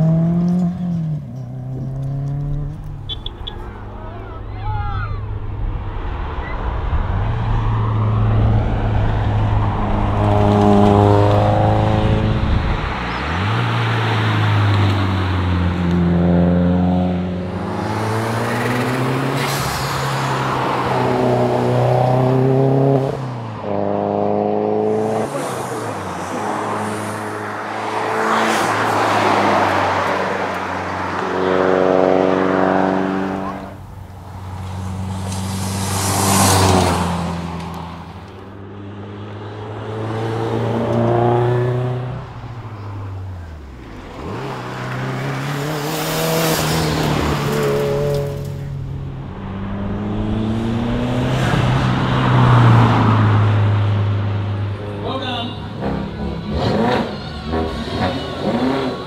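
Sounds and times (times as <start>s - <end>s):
car rushing past: 0.0s - 59.0s
rally car engine accelerating: 55.7s - 59.0s.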